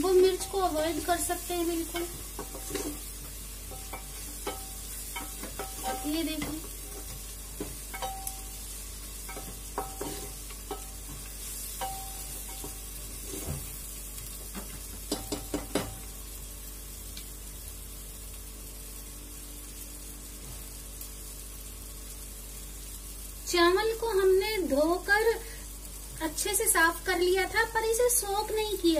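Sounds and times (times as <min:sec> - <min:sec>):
frying sizzle: 0:00.0 - 0:28.9
spatula scraping a pot: 0:01.9 - 0:03.1, 0:09.3 - 0:11.0, 0:11.8 - 0:13.6
knocks against metal pot: 0:14.6 - 0:16.0.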